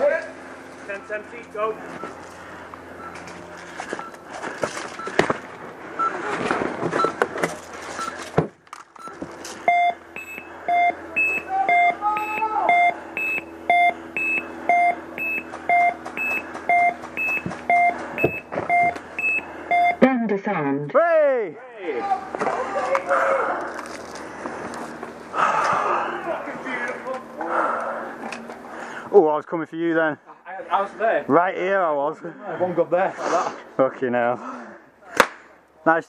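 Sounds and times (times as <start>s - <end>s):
rustling and knocks of movement: 1.8s - 9.7s
electronic beeper beeping: 9.0s - 20.8s.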